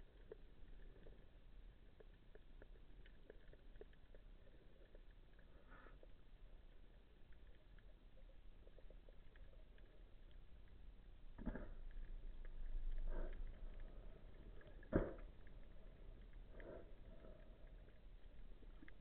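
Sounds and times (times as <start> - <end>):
soft underwater water swishes: 0.0 - 19.0.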